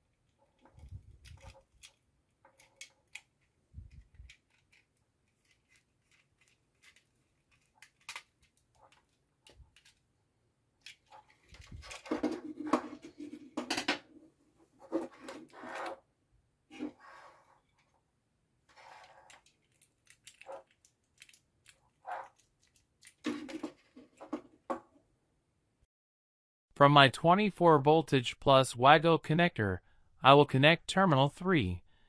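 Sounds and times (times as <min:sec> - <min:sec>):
plastic parts rubbing and clattering: 0:00.3 - 0:10.0, 0:10.8 - 0:16.1, 0:18.7 - 0:24.7.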